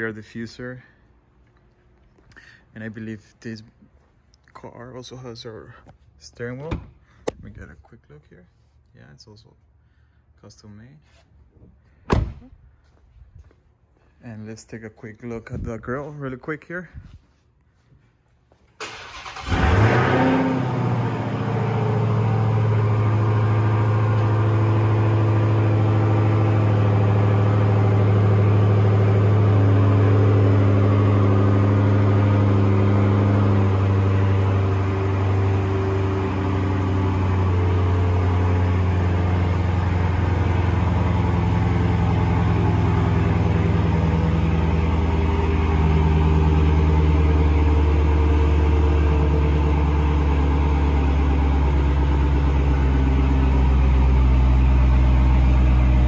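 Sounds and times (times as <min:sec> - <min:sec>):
car engine starting and idling: 0:18.7 - 0:56.0.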